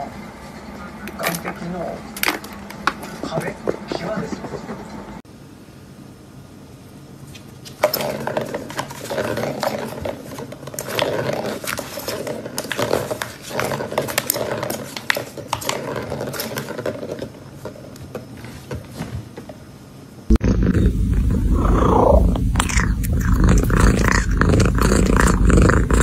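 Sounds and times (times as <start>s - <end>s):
claws scratching cardboard: 7.7s - 19.1s.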